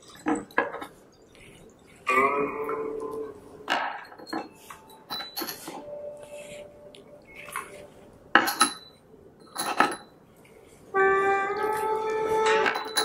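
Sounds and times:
porcelain tea cups clinking: 0.0s - 2.0s, 2.7s - 5.9s, 7.4s - 10.2s, 12.6s - 13.0s
ringing tone: 12.4s - 13.0s.

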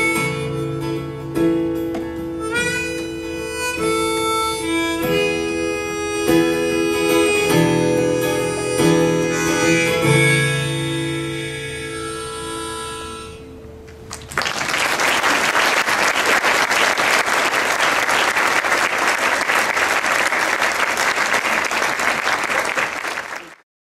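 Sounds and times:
audience applause: 14.1s - 23.6s.

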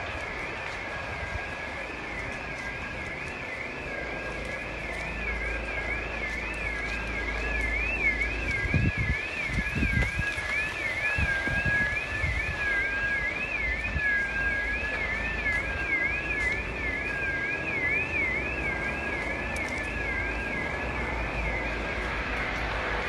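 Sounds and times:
fast sweeping electronic siren: 0.0s - 23.0s
low wavering siren: 0.0s - 23.0s
wind rumble on microphone: 6.0s - 15.8s.

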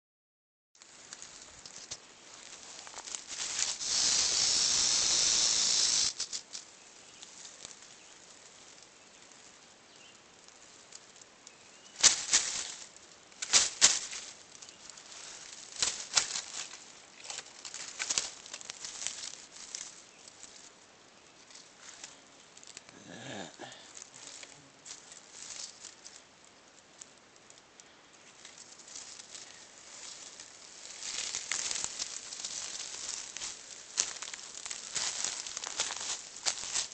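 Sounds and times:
rattlesnake rattling: 2.6s - 6.8s, 11.9s - 20.6s, 28.4s - 36.9s.

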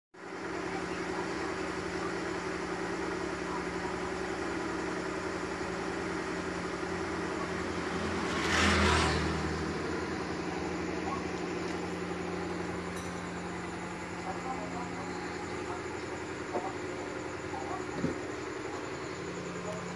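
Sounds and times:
steady mechanical hum: 0.2s - 19.9s.

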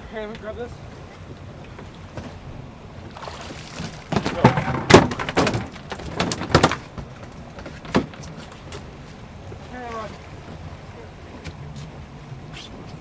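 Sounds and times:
knocks and thumps on boat: 1.6s - 12.0s.

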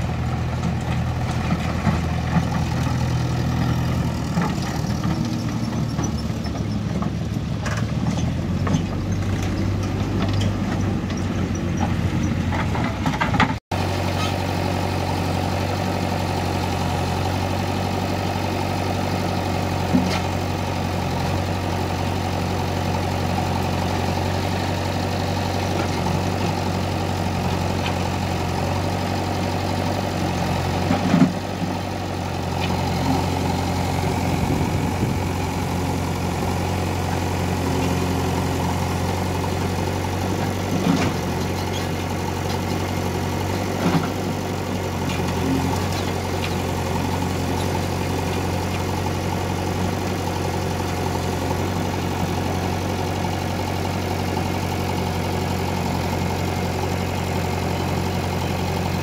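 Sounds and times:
diesel engine idling: 0.0s - 59.0s.

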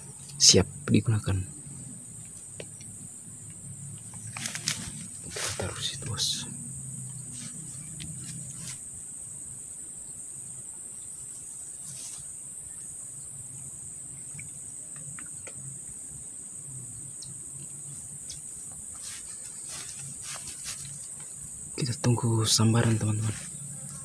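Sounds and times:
insect chorus trilling: 0.0s - 24.0s
faint ticks: 2.2s - 5.0s, 7.0s - 8.8s, 13.5s - 16.0s, 17.1s - 19.6s.

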